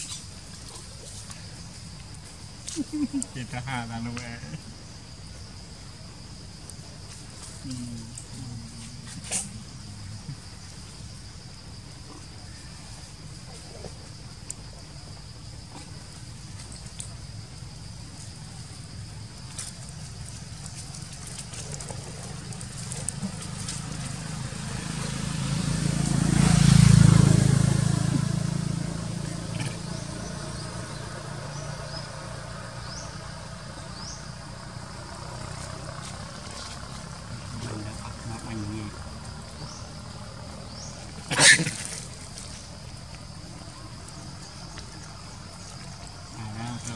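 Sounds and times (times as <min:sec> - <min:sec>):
high insect buzz: 0:00.0 - 0:46.9
vehicle passing: 0:21.5 - 0:46.9.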